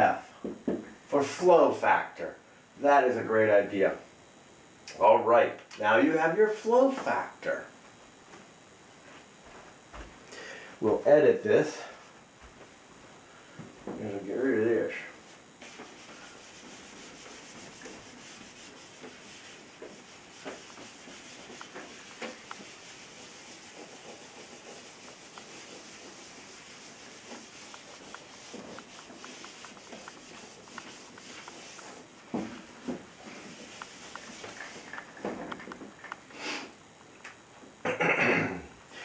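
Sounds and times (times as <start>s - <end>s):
eraser scrubbing whiteboard: 15.3s - 35.3s.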